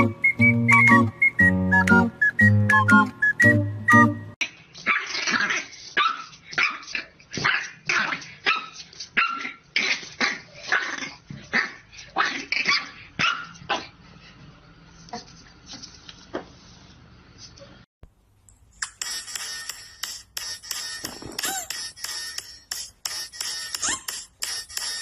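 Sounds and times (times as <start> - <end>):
plinking music: 0.0 - 4.4
puppy barking: 10.3 - 13.9.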